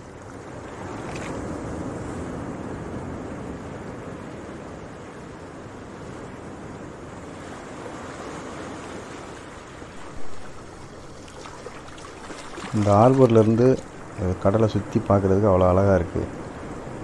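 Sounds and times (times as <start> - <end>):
sea waves washing in: 0.0 - 17.0
wind on microphone: 10.0 - 17.0.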